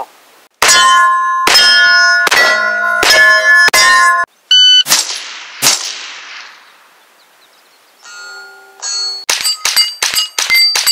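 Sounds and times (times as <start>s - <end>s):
steel targets clanging: 0.6s - 6.5s, 8.1s - 10.9s.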